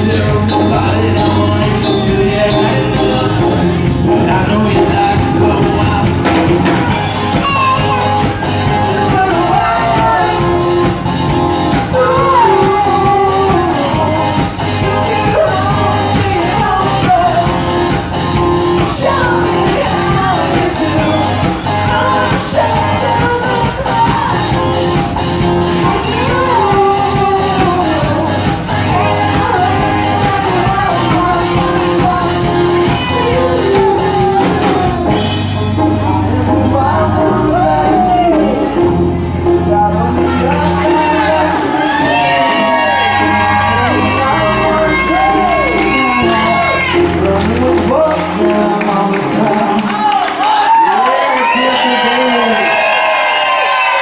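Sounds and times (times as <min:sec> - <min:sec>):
live rock band: 0:00.0 - 0:54.0
drum beat: 0:04.7 - 0:35.6.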